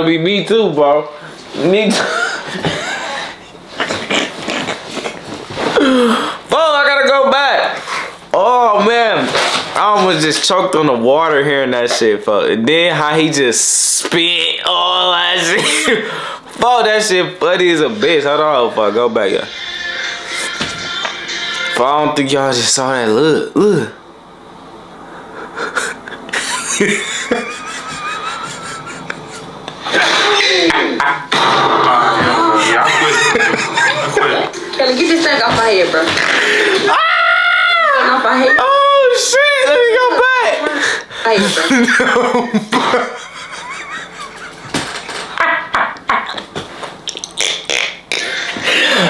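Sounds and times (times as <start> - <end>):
man laughing: 2.0 - 5.2, 15.4 - 16.1, 25.2 - 31.3, 32.0 - 34.6, 41.5 - 46.5.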